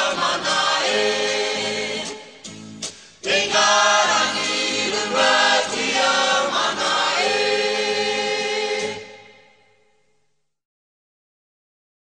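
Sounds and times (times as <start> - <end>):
choir singing held notes: 0.0 - 2.4, 3.2 - 9.8.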